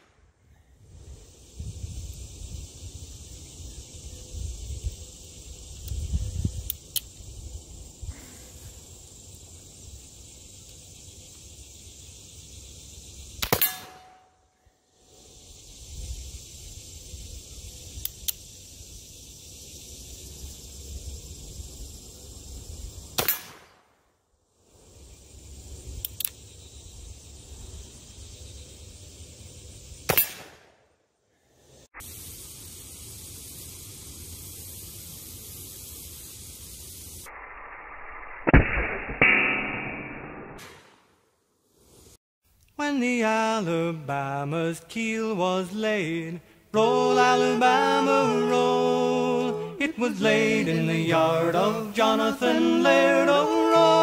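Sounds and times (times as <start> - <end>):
revolver gunshots: 30.1 - 30.8.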